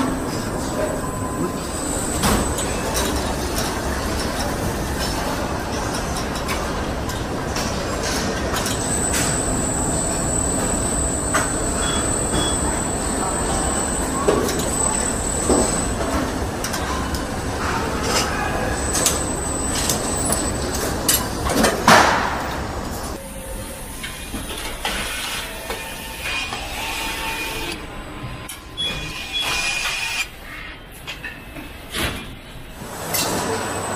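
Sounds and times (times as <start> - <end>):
assembly line machinery din: 0.0 - 30.3
thin high whine: 8.5 - 20.9.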